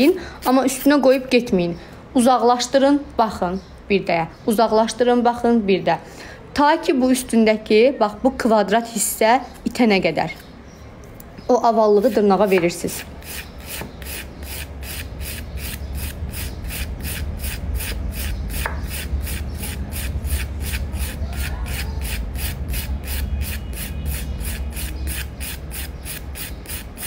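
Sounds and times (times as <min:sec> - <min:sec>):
nail file rasping: 0:12.0 - 0:27.0
steady low hum: 0:12.0 - 0:27.0.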